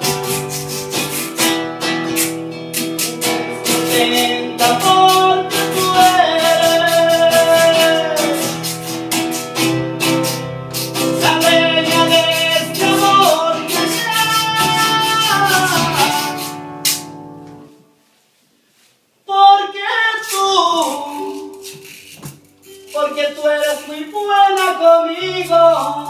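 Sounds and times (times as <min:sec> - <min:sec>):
acoustic guitar strummed: 0:00.0 - 0:17.8, 0:19.7 - 0:26.0
man singing a slow ballad: 0:03.3 - 0:08.7, 0:11.2 - 0:16.5, 0:19.2 - 0:21.7, 0:22.9 - 0:26.0.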